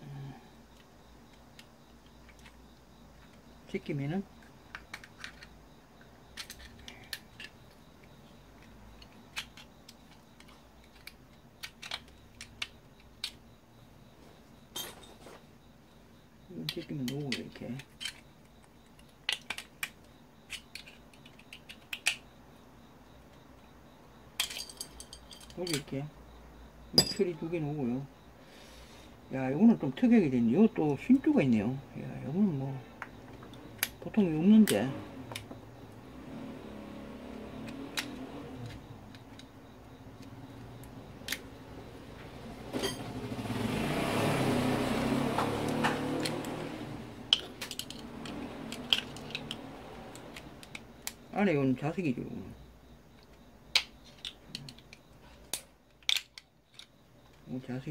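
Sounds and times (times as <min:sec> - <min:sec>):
vehicle passing: 0:34.7 - 0:39.8, 0:41.6 - 0:50.6.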